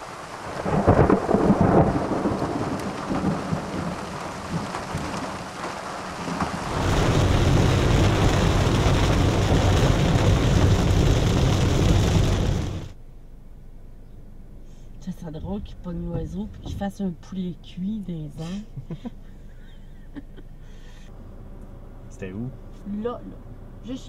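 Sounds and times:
heavy rain hissing: 0.0s - 13.0s
thunder rolling: 0.4s - 5.5s, 6.2s - 13.0s.

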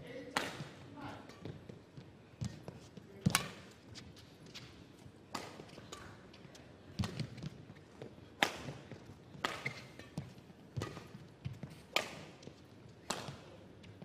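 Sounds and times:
racket hitting shuttlecock: 0.3s - 1.4s, 3.2s - 3.8s, 5.3s - 7.6s, 8.3s - 13.6s.

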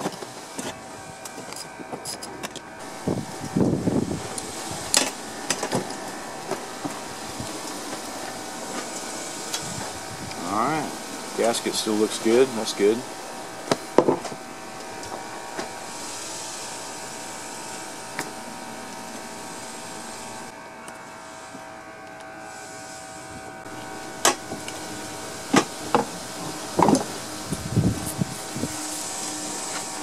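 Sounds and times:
steady machine hum: 0.0s - 30.0s.

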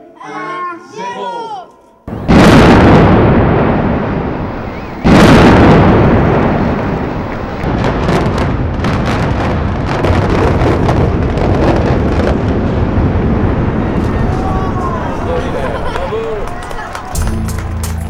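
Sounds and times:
loud explosive blast: 2.1s - 15.5s
rumble of building collapse: 2.3s - 15.8s.

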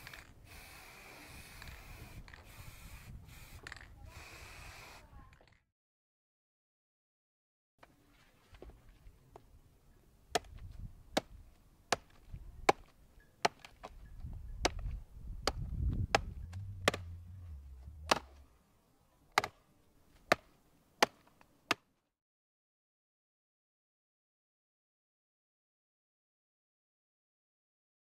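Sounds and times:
low rumble: 15.6s - 18.6s.

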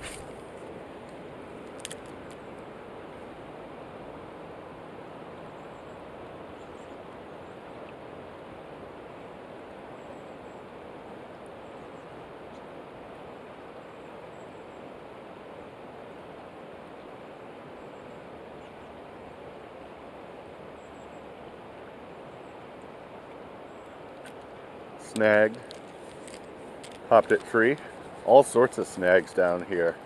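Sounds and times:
river water rushing over rocks: 14.8s - 30.0s.

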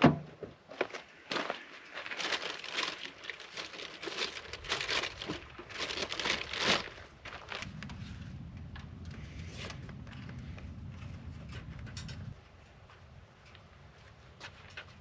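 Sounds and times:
gear rustling and crinkling: 0.7s - 15.0s.

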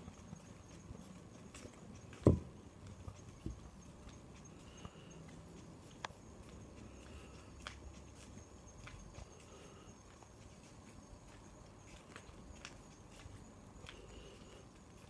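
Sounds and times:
faint background noise: 0.0s - 15.0s
footsteps on asphalt: 0.0s - 15.0s.

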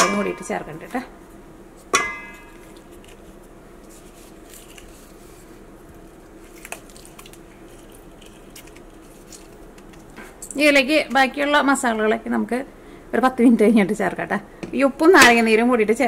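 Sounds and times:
steady low hum: 0.0s - 16.0s
faint squishing: 1.8s - 10.4s
metal clink: 2.0s - 2.6s.

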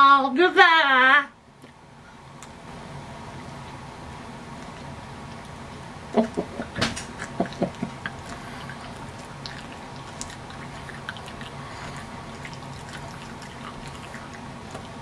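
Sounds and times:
man laughing: 6.2s - 8.0s.

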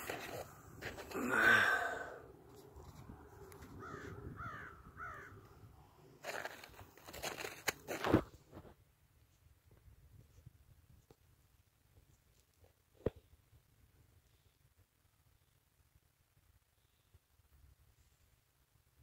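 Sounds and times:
snow crunching and rustling: 0.0s - 1.4s, 6.2s - 8.4s
crow cawing: 3.8s - 5.5s.

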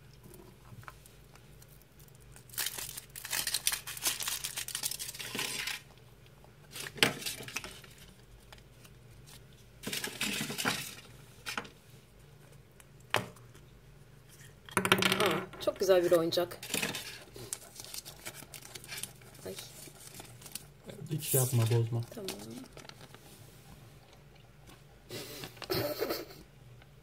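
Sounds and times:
foil wrapper crinkling and tearing: 2.0s - 5.9s, 16.6s - 23.0s.

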